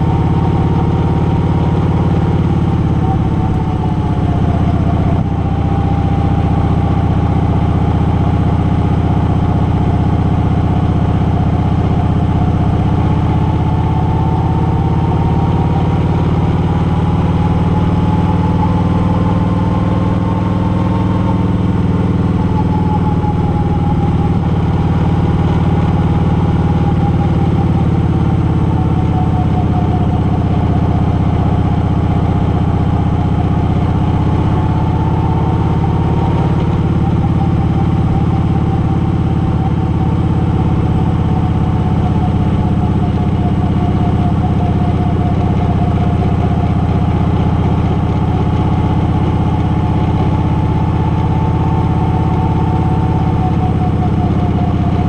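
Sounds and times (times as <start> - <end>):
high whine: 0.0 - 8.1, 20.3 - 55.0
vehicle engine droning: 0.0 - 55.0
wind and road noise: 0.0 - 55.0.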